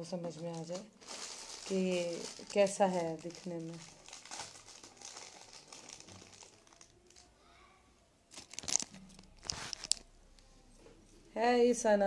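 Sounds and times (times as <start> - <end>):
jewelry rustling on a table: 8.3 - 10.1.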